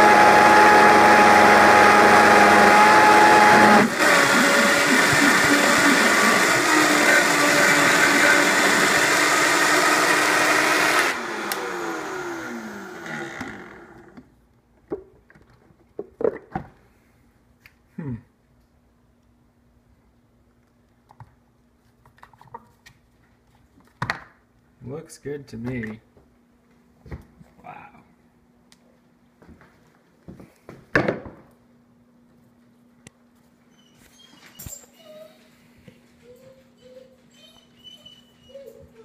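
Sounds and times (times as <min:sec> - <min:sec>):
blender motor running: 0:00.0 - 0:14.2.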